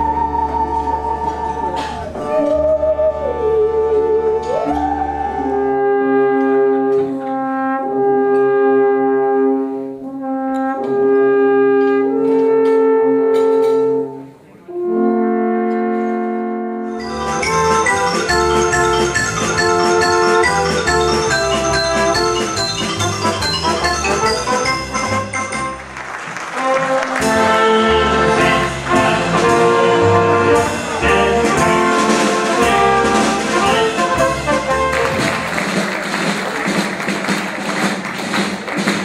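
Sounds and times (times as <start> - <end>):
alphorns playing held notes: 0.0 - 6.8, 14.8 - 25.9, 26.6 - 35.3
bowed musical saw: 0.0 - 7.2, 14.8 - 25.8
wooden xylophone runs: 17.0 - 25.8.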